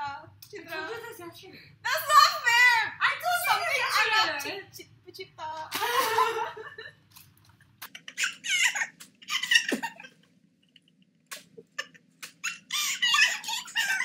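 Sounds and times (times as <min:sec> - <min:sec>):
hand claps: 0:11.3 - 0:11.5, 0:12.2 - 0:12.5.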